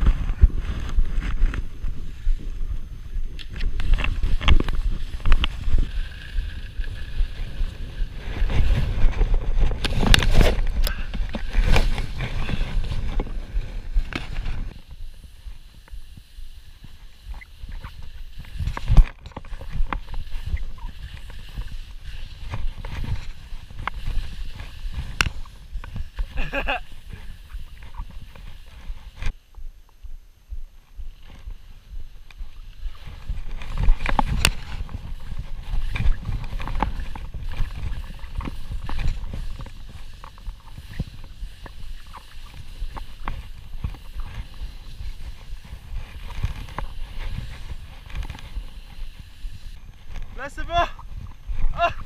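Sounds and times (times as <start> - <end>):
skis running through snow: 0.0 - 29.6, 30.7 - 52.0
wind rumble on microphone: 0.0 - 52.0
ski knocks and pole clicks: 17.3 - 29.3.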